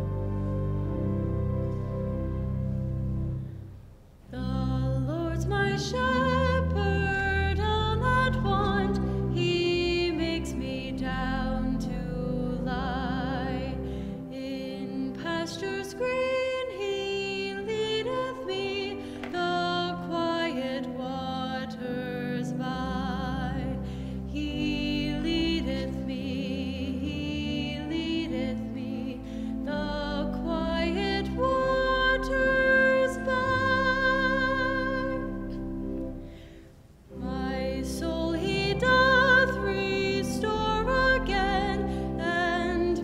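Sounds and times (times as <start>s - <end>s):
sustained low instrumental notes: 0.0s - 4.1s.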